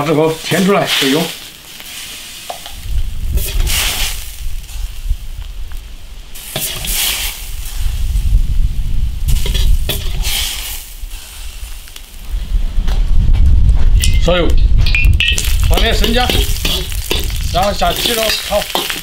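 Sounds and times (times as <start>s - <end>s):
roe sizzling in a wok: 0.0s - 12.6s, 14.8s - 19.0s
low rumble: 2.8s - 6.2s, 12.3s - 18.5s
ladle scooping: 15.3s - 19.0s.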